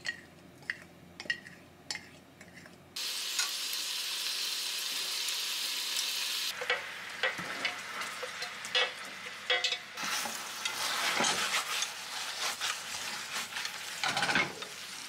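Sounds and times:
sauce sizzling in a frying pan: 3.0 - 15.0.

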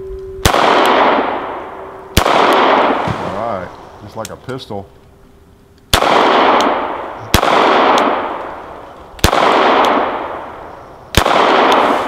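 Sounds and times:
gunshots with echo: 0.4 - 3.7, 5.9 - 8.6, 9.2 - 12.0.

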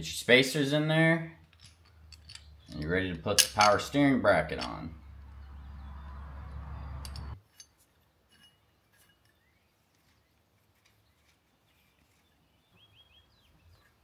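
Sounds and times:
metallic clinks and taps: 1.4 - 5.0, 7.0 - 9.4.

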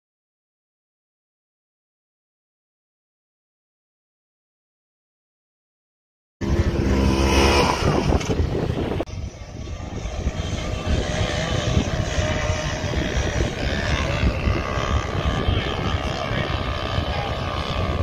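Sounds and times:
off-road vehicle engine revving: 6.4 - 18.0
rushing noise while riding: 6.4 - 18.0.

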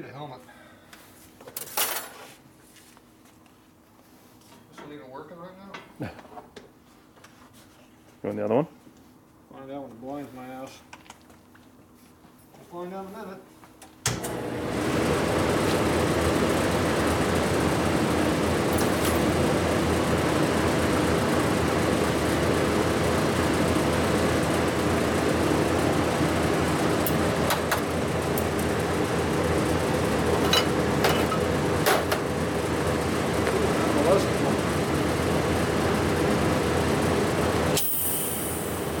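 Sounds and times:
fan whir: 13.8 - 39.0
welding machine electrical hum: 14.1 - 39.0.

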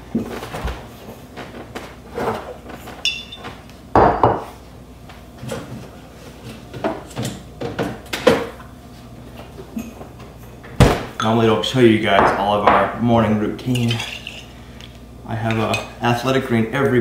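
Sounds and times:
glass jars clinking: 3.0 - 3.4.

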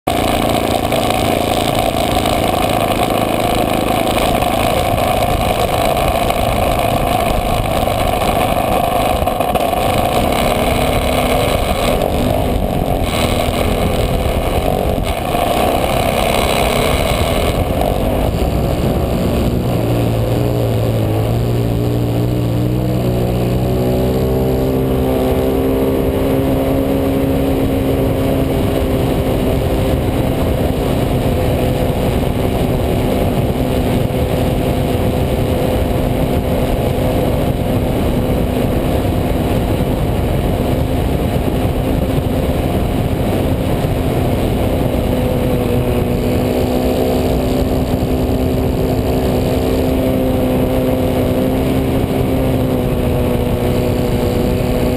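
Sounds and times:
model airplane engine drone: 0.0 - 54.9.

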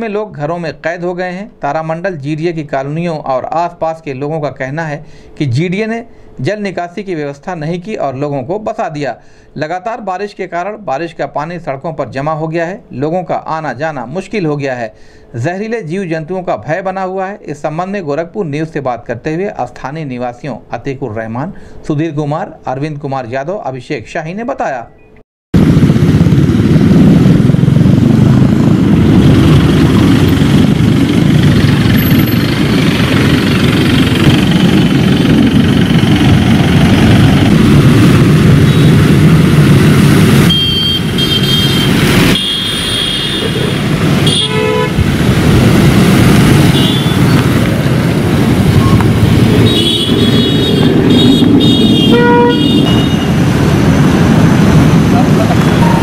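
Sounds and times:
traffic on a flooded road: 26.1 - 56.0
vehicle horns tooting: 38.6 - 39.1, 40.4 - 45.0, 46.6 - 47.5, 49.6 - 53.4.

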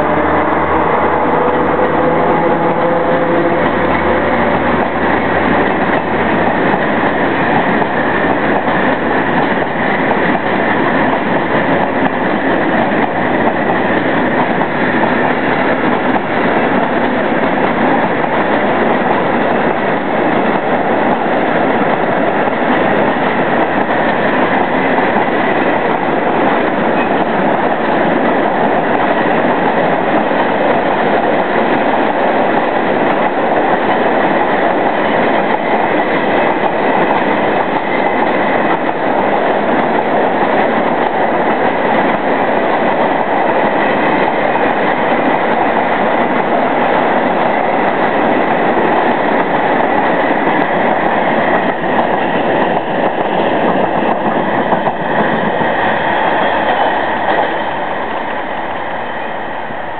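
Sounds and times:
freight train wagons rumbling: 0.0 - 59.9
wheels clickety-clack: 1.8 - 57.6.

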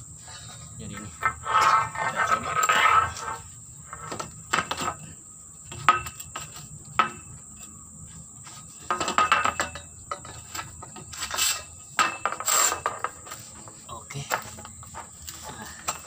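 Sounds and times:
high insect drone: 0.0 - 16.0
metal tube rattling and scraping: 0.2 - 5.0, 8.8 - 13.5.

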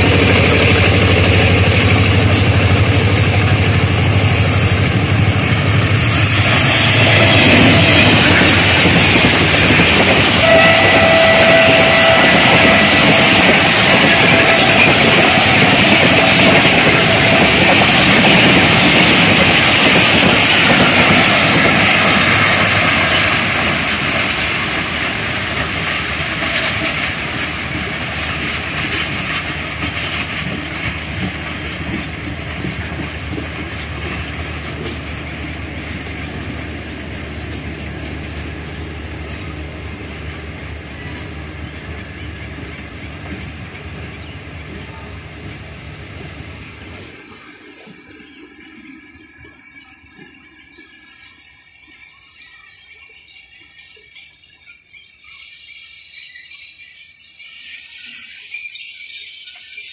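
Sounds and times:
train wheels clattering on rails: 0.0 - 55.8.

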